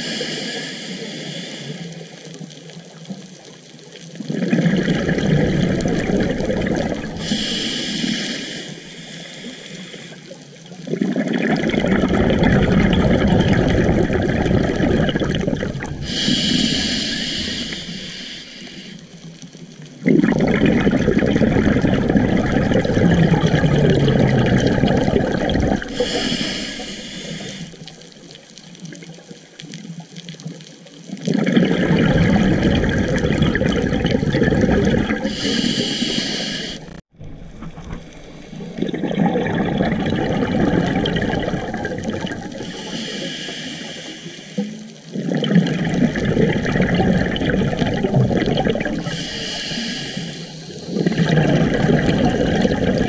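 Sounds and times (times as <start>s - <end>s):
regulator inhale hiss: 0.0s - 2.3s, 7.2s - 10.4s, 16.0s - 19.3s, 25.8s - 28.0s, 35.2s - 37.0s, 42.5s - 45.0s, 49.0s - 51.0s
exhaled bubbles rushing: 3.9s - 8.0s, 10.7s - 18.8s, 19.7s - 29.2s, 31.1s - 43.0s, 44.8s - 53.0s.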